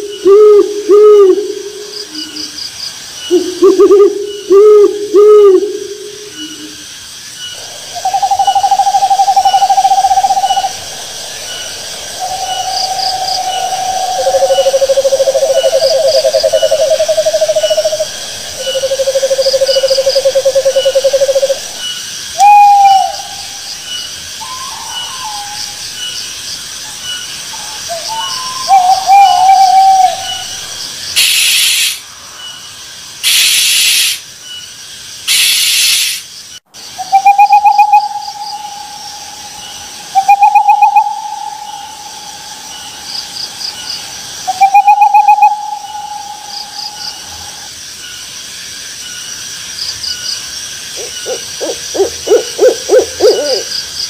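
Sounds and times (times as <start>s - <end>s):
crickets chirping: 0.0s - 54.0s
owl trilling calls: 7.6s - 21.8s, 22.4s - 23.7s, 27.6s - 30.6s, 44.5s - 47.7s, 51.0s - 53.7s
harsh hissing bursts: 31.2s - 32.2s, 33.2s - 34.3s, 35.3s - 36.4s.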